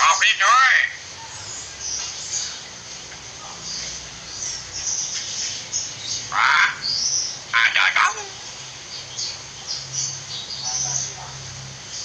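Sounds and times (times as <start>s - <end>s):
bird harsh call: 6.1s - 8.6s.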